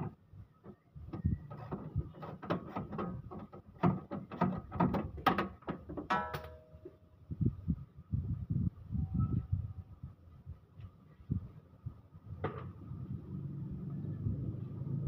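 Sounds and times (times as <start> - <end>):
plastic cover rattling and knocking: 2.4 - 6.2.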